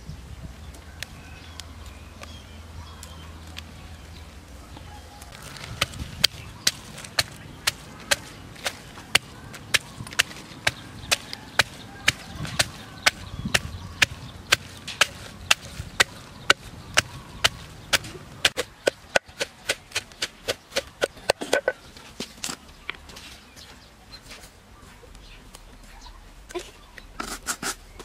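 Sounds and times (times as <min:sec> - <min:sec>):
pestle pounding in wooden mortar: 0:05.8 - 0:21.7.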